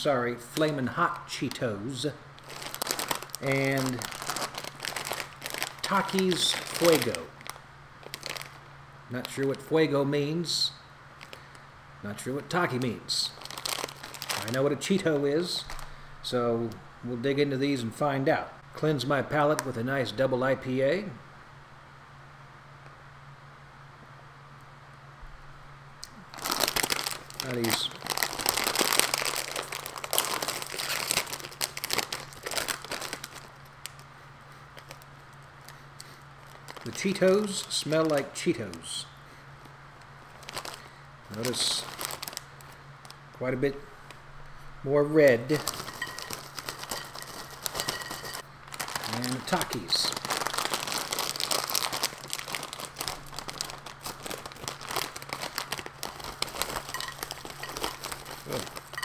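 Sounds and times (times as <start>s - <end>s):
plastic snack bag crinkling: 0.0s - 10.0s, 11.2s - 11.6s, 12.3s - 16.0s, 26.0s - 44.2s, 45.1s - 59.0s.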